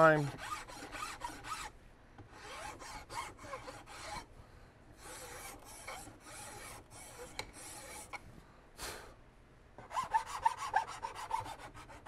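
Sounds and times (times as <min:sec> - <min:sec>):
file rasping on wood: 0:00.0 - 0:01.7, 0:02.3 - 0:04.3, 0:05.0 - 0:08.2, 0:09.8 - 0:12.0.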